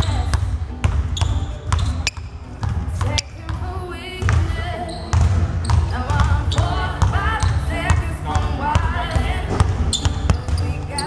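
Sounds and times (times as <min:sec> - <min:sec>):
people talking: 0:00.0 - 0:00.5, 0:01.2 - 0:09.7
basketball bouncing on hardwood floor: 0:00.0 - 0:03.6, 0:05.1 - 0:08.0.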